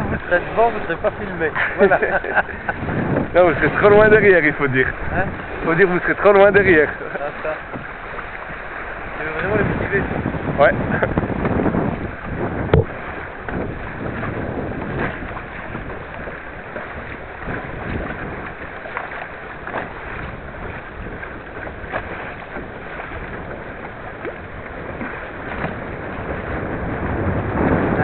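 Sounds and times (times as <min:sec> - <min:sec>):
choppy water splashing: 0:00.0 - 0:28.0
water slapping: 0:00.0 - 0:28.0
wind buffeting microphone: 0:00.0 - 0:28.0
sharp knock: 0:12.7 - 0:12.9.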